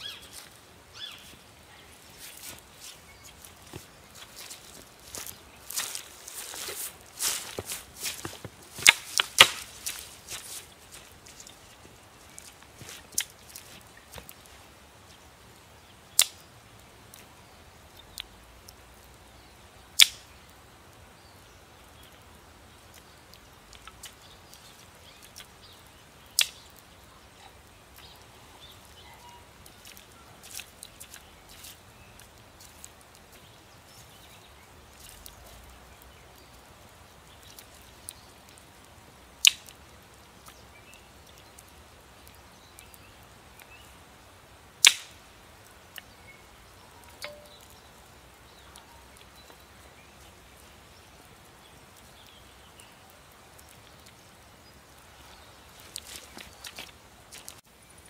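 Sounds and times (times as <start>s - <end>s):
campfire wood cracking: 0.0s - 58.0s
small ticks and pops: 16.1s - 17.3s, 17.9s - 19.3s, 20.0s - 20.5s, 21.8s - 29.0s, 29.6s - 43.9s, 44.8s - 45.2s, 45.9s - 46.2s, 47.0s - 55.0s, 55.8s - 58.0s.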